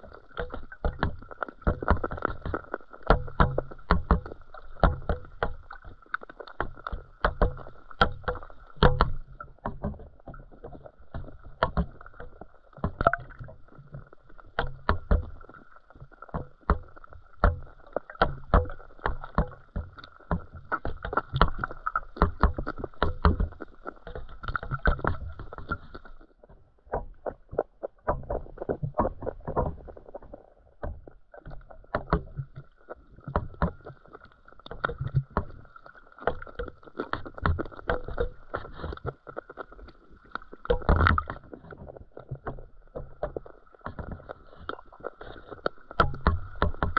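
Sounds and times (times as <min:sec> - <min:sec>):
muffled watery wash: 0:00.0 - 0:46.9
underwater clicks and knocks: 0:00.0 - 0:46.9.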